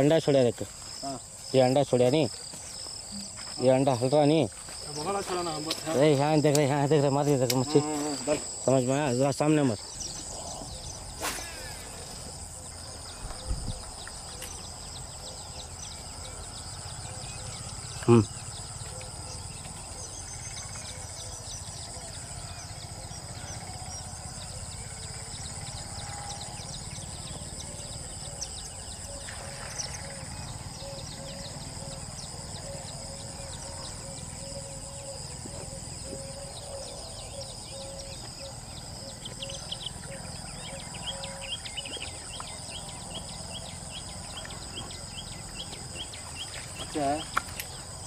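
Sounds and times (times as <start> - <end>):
insects shrilling: 2.9 - 15.0.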